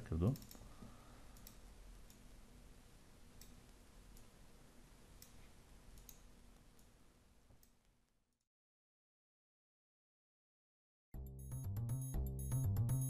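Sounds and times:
faint computer mouse clicks: 0:00.3 - 0:02.3, 0:06.0 - 0:06.9.

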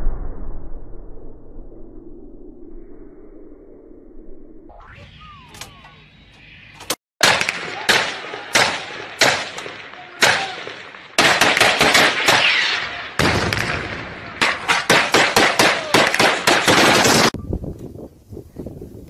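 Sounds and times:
outdoor noise: 0:00.0 - 0:19.0
faint whistle-like glides: 0:02.0 - 0:06.8
gunshots: 0:07.2 - 0:17.4.

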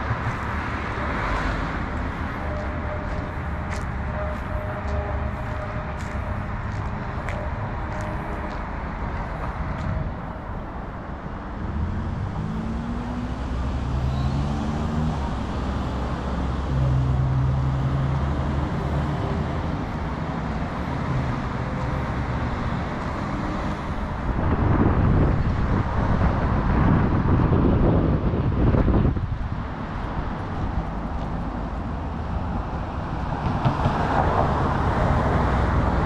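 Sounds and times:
general traffic noise: 0:00.0 - 0:36.0
wind buffeting microphone: 0:23.9 - 0:36.0.

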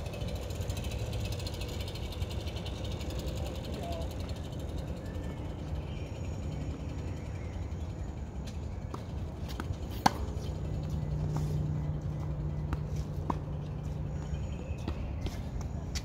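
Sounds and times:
low steady hum: 0:00.0 - 0:16.0
tennis ball struck by racquet: 0:08.9 - 0:10.6.

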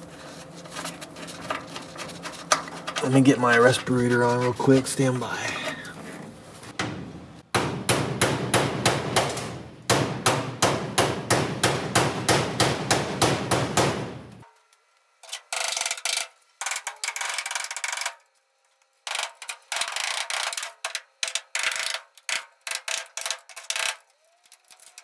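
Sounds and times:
hammer striking metal: 0:06.8 - 0:14.2.

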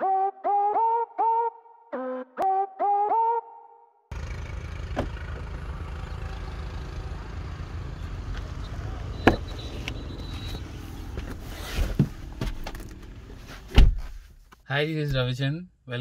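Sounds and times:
car door thud: 0:09.2 - 0:09.6, 0:13.7 - 0:14.1.

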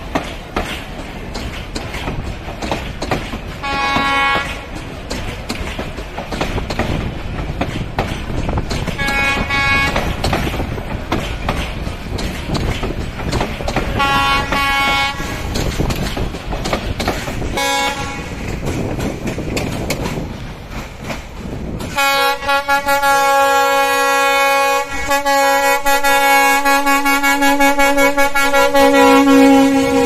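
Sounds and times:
train wheels rumbling on track: 0:00.0 - 0:30.0
train horn blasts: 0:03.6 - 0:04.7, 0:09.0 - 0:10.2, 0:13.9 - 0:15.5, 0:17.6 - 0:18.4, 0:21.9 - 0:30.0.

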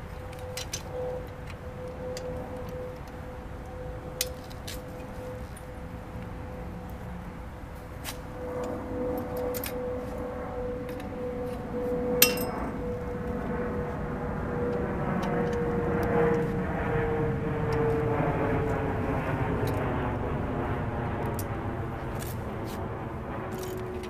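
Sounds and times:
mechanical drone with hum: 0:00.0 - 0:24.0
sharp metallic clink: 0:12.2 - 0:12.8.

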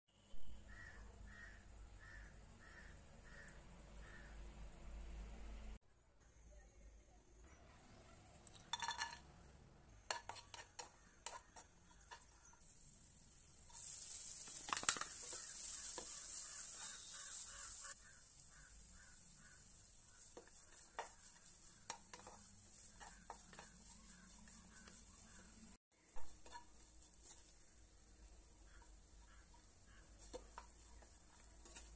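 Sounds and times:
carrot sizzling in hot ghee: 0:10.0 - 0:31.9
spatula scraping pan: 0:10.1 - 0:31.9.

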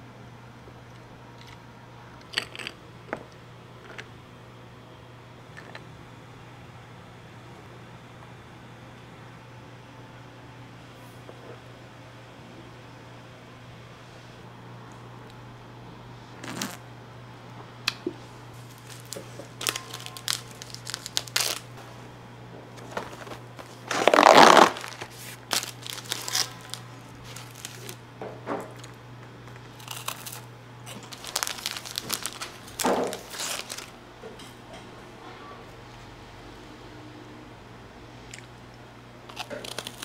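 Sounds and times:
packaging crinkling and tearing: 0:18.6 - 0:21.7, 0:22.8 - 0:28.0, 0:29.7 - 0:34.0, 0:39.3 - 0:40.0.

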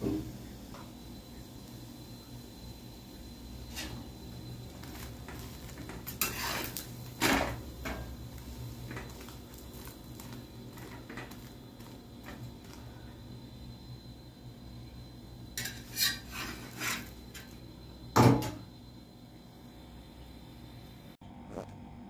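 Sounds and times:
metal spatula scraping on iron: 0:03.7 - 0:04.1, 0:04.8 - 0:08.1, 0:15.6 - 0:17.6
loud metal clank: 0:18.2 - 0:18.6.

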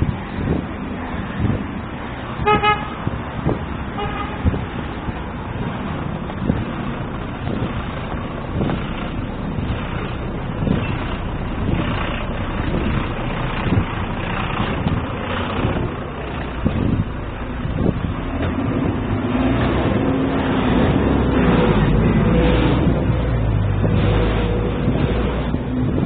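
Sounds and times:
street traffic: 0:00.0 - 0:26.0
car horn tooting: 0:02.4 - 0:03.1, 0:04.0 - 0:04.6.

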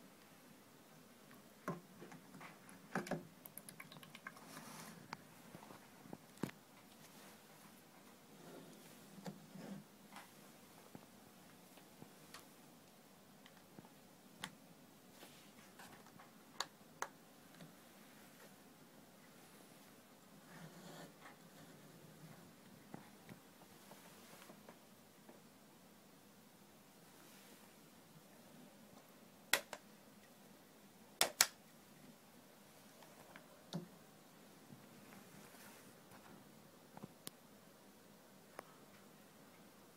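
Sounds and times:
faint sharp plastic clicks: 0:29.0 - 0:30.4
sharp plastic clicks: 0:29.5 - 0:29.9, 0:31.2 - 0:31.6.

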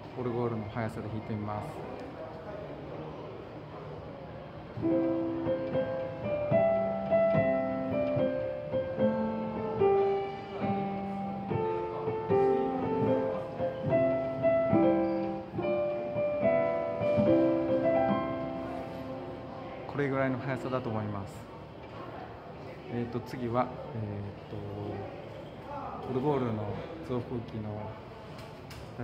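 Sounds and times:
piano playing chime melody: 0:04.8 - 0:19.3.

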